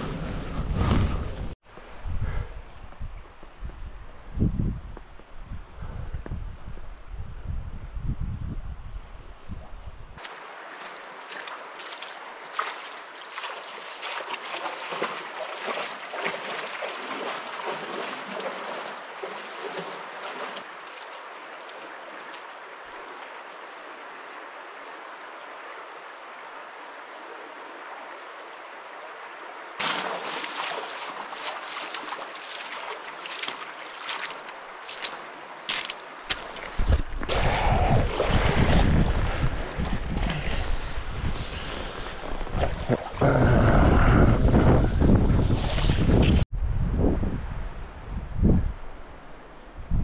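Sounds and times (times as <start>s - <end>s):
splashing footsteps in water: 10.2s - 22.6s, 29.8s - 37.3s
river water rushing over sand: 10.2s - 44.7s.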